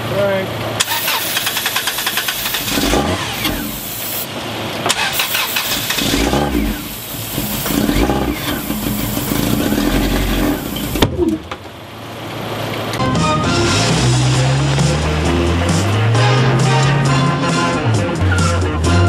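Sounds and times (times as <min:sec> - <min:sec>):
engine firing and sputtering: 0:00.0 - 0:13.0
engine cranked by starter: 0:00.2 - 0:11.5.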